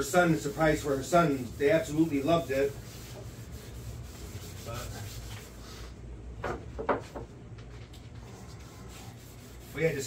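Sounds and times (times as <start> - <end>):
rag rubbing on wood: 0.0 - 5.6, 8.2 - 10.0.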